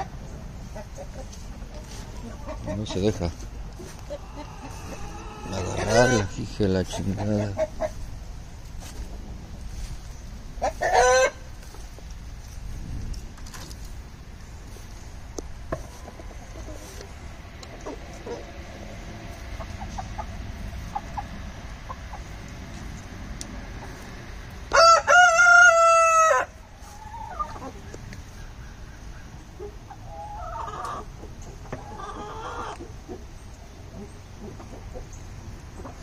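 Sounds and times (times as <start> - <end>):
chicken clucking: 0.0 - 12.0, 15.7 - 36.0
rooster crowing: 4.3 - 6.3, 24.7 - 26.6.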